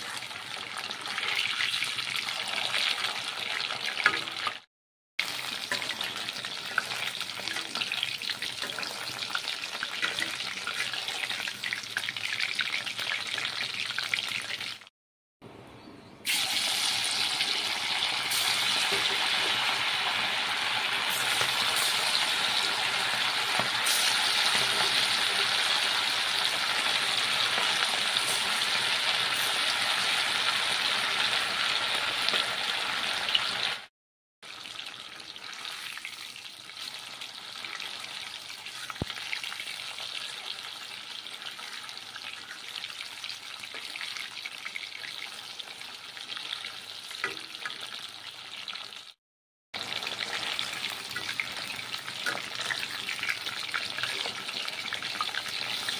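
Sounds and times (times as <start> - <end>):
food deep-frying in hot oil: 0.0 - 14.9, 16.2 - 49.2, 49.8 - 55.9.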